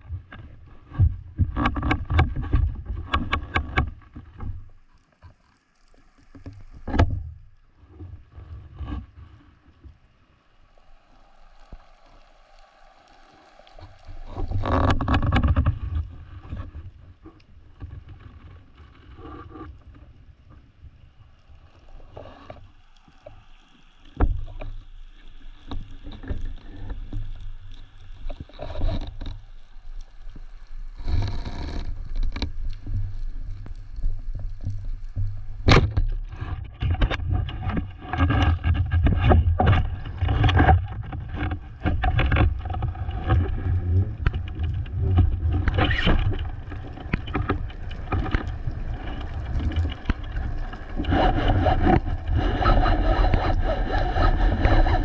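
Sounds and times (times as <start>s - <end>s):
underwater rumble of moving water: 0.0s - 55.0s
knocks and scrapes on rock: 0.4s - 4.6s, 14.4s - 16.8s, 35.6s - 55.0s.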